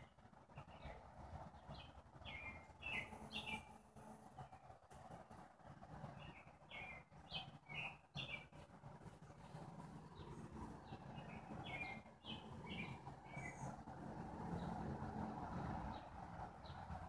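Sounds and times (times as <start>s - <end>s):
low steady background rumble: 0.0s - 17.0s
faint bird chirping: 1.6s - 4.8s, 6.1s - 8.7s, 9.3s - 13.8s.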